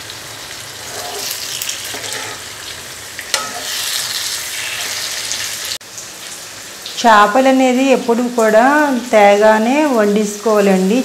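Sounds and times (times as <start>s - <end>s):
frying sizzle: 0.0s - 11.0s
ladle scraping pan: 0.8s - 2.6s, 3.2s - 5.4s.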